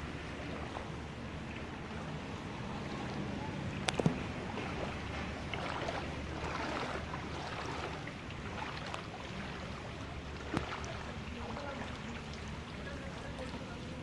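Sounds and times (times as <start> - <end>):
rain on floodwater: 0.0 - 14.0
small drip ticks: 10.4 - 12.7.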